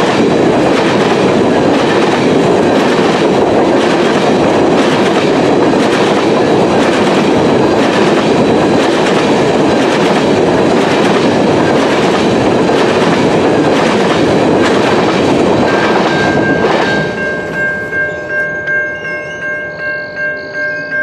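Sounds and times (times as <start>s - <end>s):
train wheels clacking: 0.0s - 17.9s
high ringing tone: 15.6s - 21.0s.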